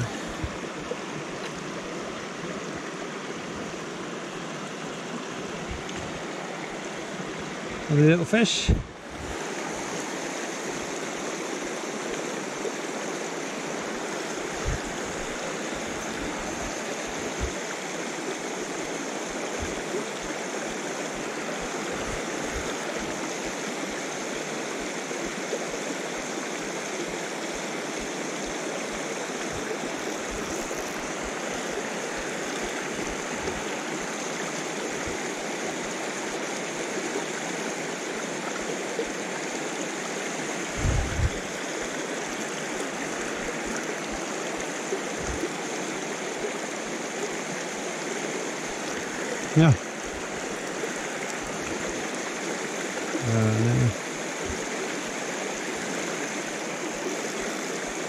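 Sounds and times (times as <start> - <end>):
stream rushing over rocks: 0.0 - 58.0
faint low bumps: 40.8 - 41.4.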